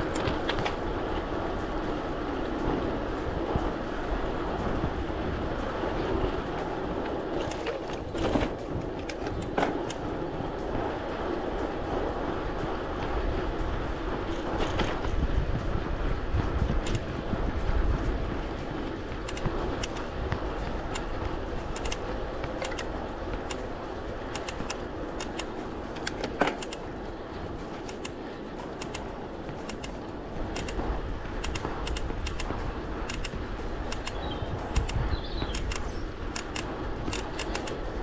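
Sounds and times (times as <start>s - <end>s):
bike clicks and rattles: 0.0s - 38.0s
wind and tyres on asphalt: 0.0s - 38.0s.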